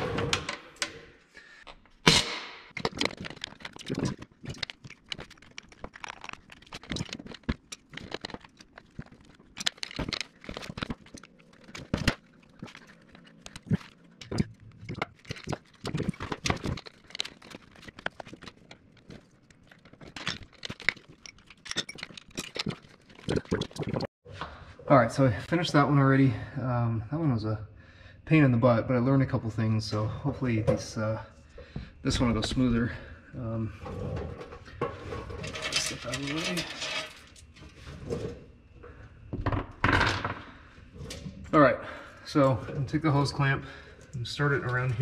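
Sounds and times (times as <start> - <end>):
crinkling handling noise: 2.7 - 24.1, 30.4 - 39.5.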